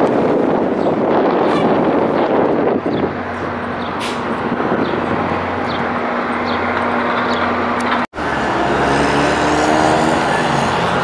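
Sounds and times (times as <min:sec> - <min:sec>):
city street traffic hum: 0:00.0 - 0:11.0
vehicle engine speeding up: 0:04.4 - 0:11.0.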